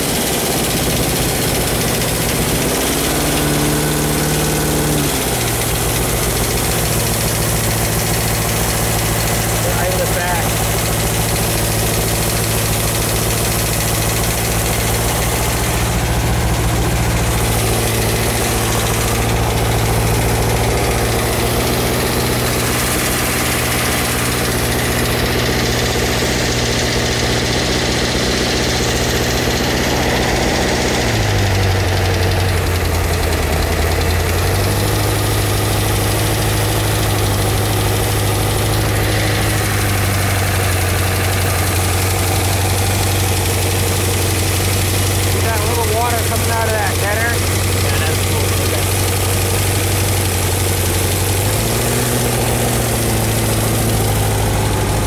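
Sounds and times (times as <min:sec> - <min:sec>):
boat engine running at low speed: 0:00.0 - 0:55.0.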